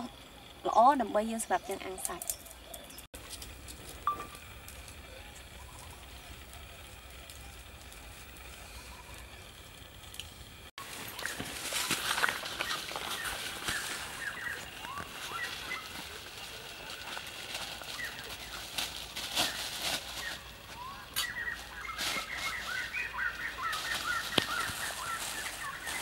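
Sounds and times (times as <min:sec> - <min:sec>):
birds chirping: 0:00.0 - 0:26.0
plastic bag crinkling: 0:10.8 - 0:23.0.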